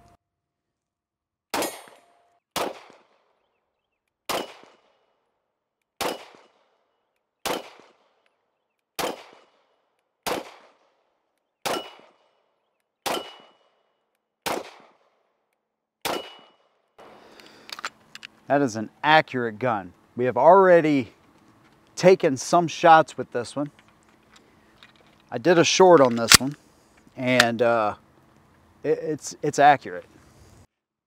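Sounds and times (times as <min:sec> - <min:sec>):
pistol shots: 0:01.5 - 0:03.3, 0:04.3 - 0:05.0, 0:06.0 - 0:06.8, 0:07.4 - 0:08.2, 0:09.0 - 0:11.0, 0:11.6 - 0:12.3, 0:13.0 - 0:13.8, 0:14.4 - 0:15.2, 0:16.0 - 0:17.1.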